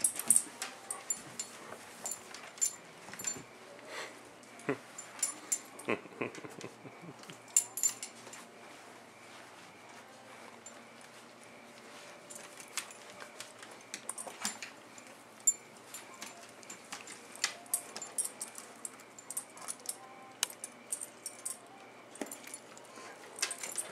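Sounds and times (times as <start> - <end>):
dog tags jingling: 0.0 - 3.4, 7.3 - 8.4, 12.3 - 23.9
dogs scuffling: 7.9 - 19.8.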